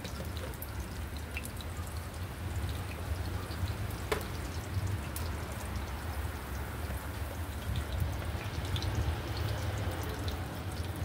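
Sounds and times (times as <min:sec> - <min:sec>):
oil popping: 0:00.0 - 0:01.6, 0:03.8 - 0:09.0.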